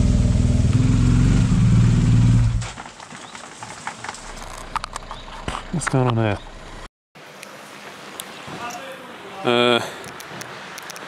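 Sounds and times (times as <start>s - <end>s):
motorcycle engine running low revs: 0.0s - 2.7s.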